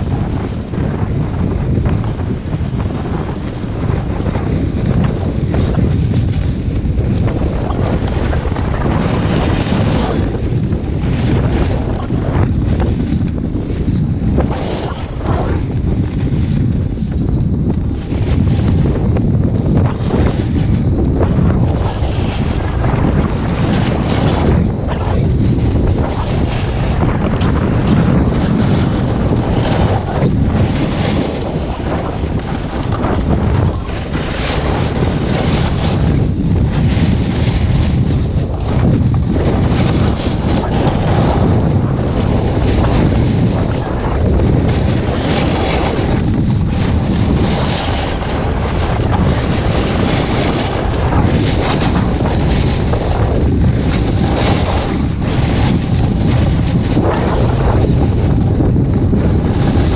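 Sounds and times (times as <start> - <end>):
wind buffeting microphone: 0.0 - 59.9
snowboard edge scraping snow: 19.6 - 36.2, 36.8 - 59.9.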